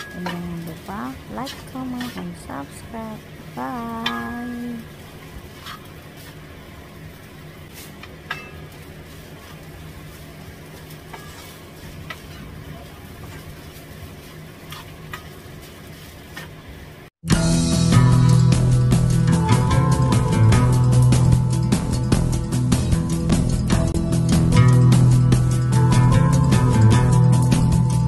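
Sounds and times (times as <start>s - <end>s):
rice sizzling in a wok: 0.0s - 17.1s
spatula tapping and scraping pan: 1.4s - 2.4s, 11.1s - 12.5s
loud music: 17.2s - 28.0s.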